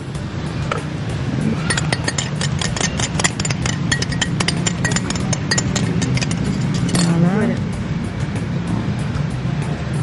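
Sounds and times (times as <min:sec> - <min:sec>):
steady low hum: 0:01.1 - 0:08.2
utensil clicking against a bowl: 0:01.7 - 0:07.1.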